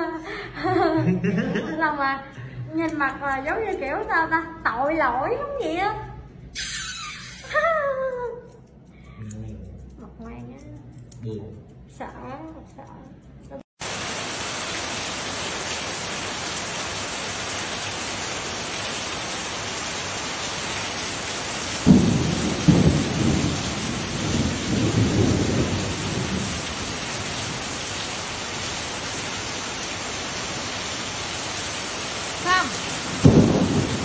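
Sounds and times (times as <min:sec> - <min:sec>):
heavy rain on paving: 0:13.8 - 0:34.0
thunderclap rumbling: 0:21.6 - 0:28.4, 0:32.4 - 0:34.0.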